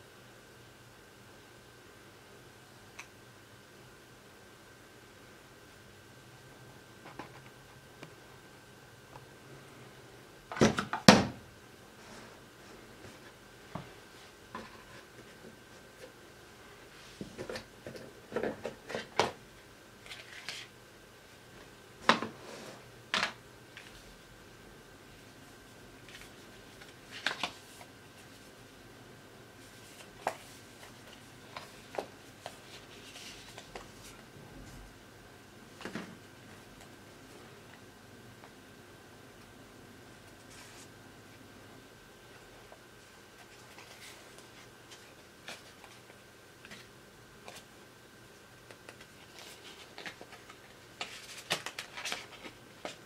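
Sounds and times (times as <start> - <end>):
paper and card rustling: 20.0 - 20.7, 26.0 - 28.6, 29.6 - 34.2, 40.3 - 40.9, 43.4 - 47.7, 48.6 - 53.0.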